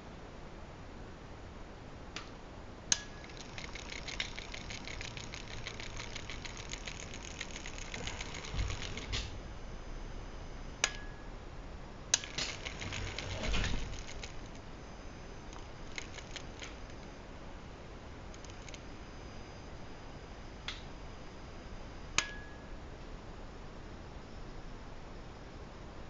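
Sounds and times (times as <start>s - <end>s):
sharp clicks: 2.9s - 9.3s, 15.5s - 17.1s
robot arm motors ticking whir: 2.9s - 11.1s, 12.2s - 17.2s, 18.3s - 18.8s.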